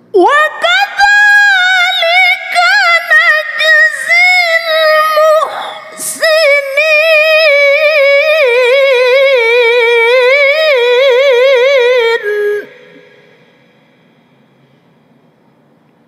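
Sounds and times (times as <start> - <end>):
woman reciting melodically: 0.0 - 14.1.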